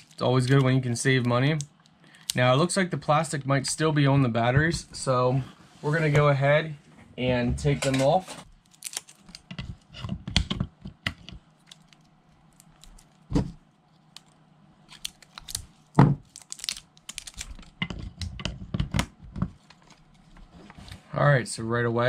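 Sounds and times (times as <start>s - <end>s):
plastic wrap crinkling: 8.6s - 9.9s, 11.5s - 13.3s, 13.9s - 18.4s.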